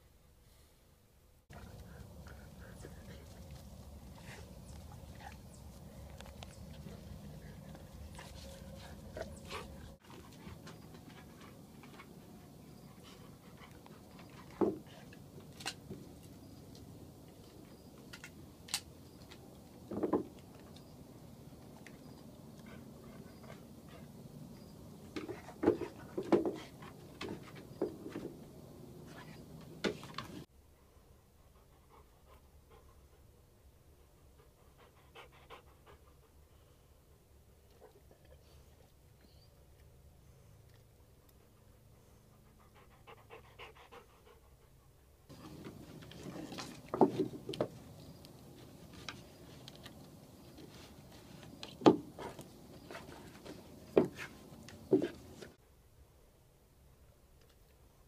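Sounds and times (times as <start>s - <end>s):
dog panting: 1.5s - 15.2s, 22.0s - 28.0s, 31.2s - 36.9s, 41.2s - 55.6s.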